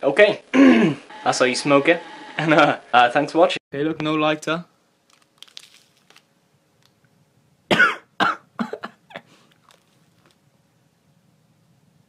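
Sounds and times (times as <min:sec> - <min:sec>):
person coughing: 0:00.6 - 0:01.0, 0:07.7 - 0:09.3.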